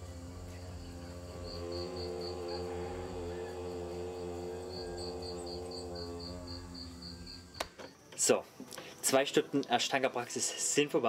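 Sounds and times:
low sustained drone: 0.0 - 7.6
cricket chirping: 0.0 - 9.6.

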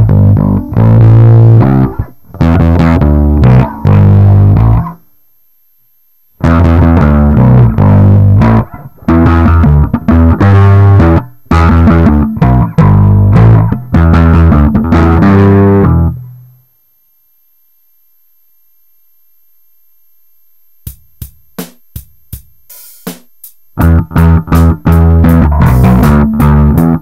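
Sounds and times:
electric bass riff: 0.0 - 5.0, 6.4 - 16.5, 23.8 - 27.0.

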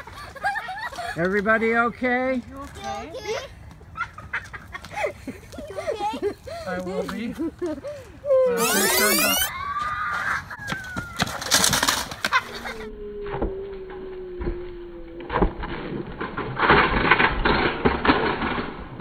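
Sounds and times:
scooter clattering on pavement: 10.6 - 12.7
scooter rolling over asphalt: 10.7 - 17.2.

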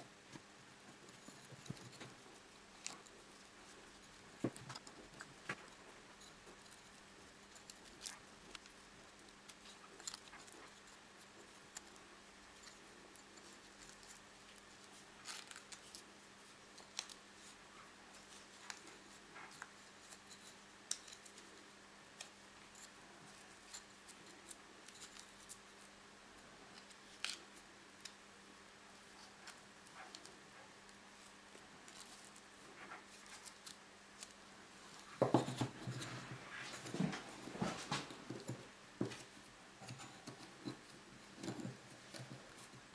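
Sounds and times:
wooden sticks clicking and rustling: 0.3 - 25.9.

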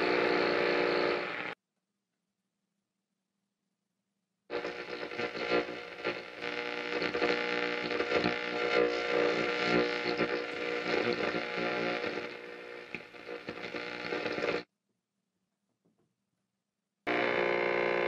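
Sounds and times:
radio hum: 0.0 - 1.6, 4.5 - 14.6, 17.1 - 18.0
radio static: 0.0 - 1.6, 4.5 - 14.6, 17.1 - 18.0.

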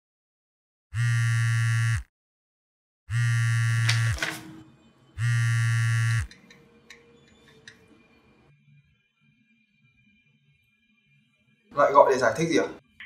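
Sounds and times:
phone vibrating on hard surface: 1.0 - 2.1, 3.1 - 4.2, 5.2 - 6.3.

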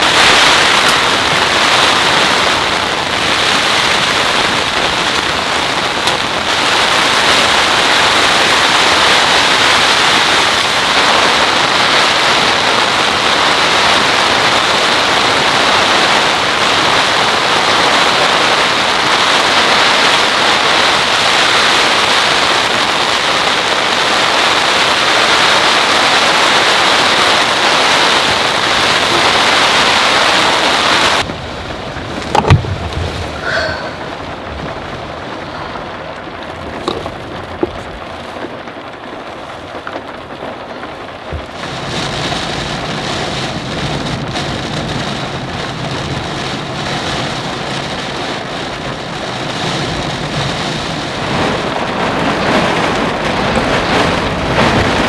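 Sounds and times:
heavy rain pouring: 0.0 - 55.0.

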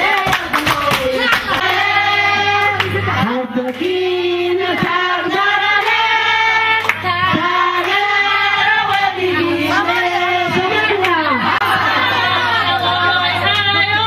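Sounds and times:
women singing into microphones: 0.0 - 14.0.

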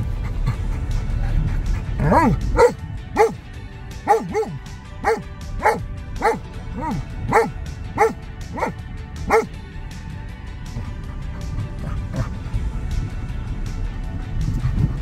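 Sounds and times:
background music: 0.0 - 15.0
dog whining and yipping: 1.2 - 3.4, 4.1 - 9.5.

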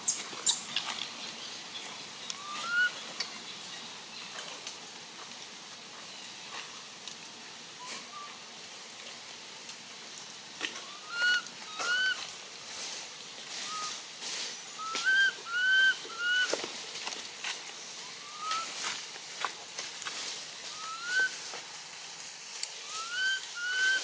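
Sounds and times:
infant monkey coo calls: 2.3 - 3.0, 10.8 - 12.3, 13.6 - 14.0, 14.8 - 16.5, 18.0 - 18.8, 20.7 - 21.4, 22.8 - 24.0.

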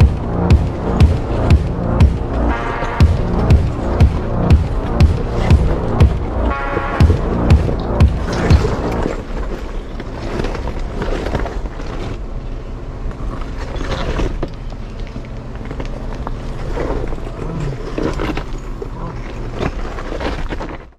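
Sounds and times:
car engine running low: 0.0 - 20.0
tyres rolling over loose rock: 13.2 - 20.9.

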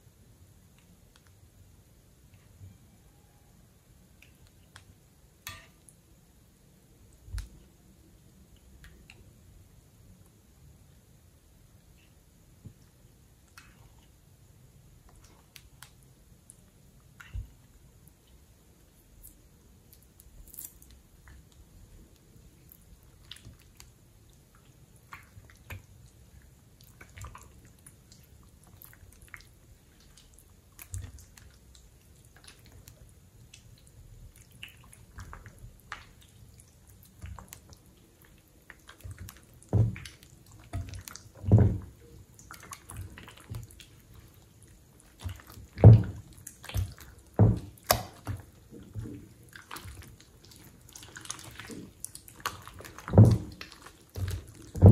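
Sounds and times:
wet slime squelches: 11.7 - 54.9
slime squishing: 19.2 - 54.9.

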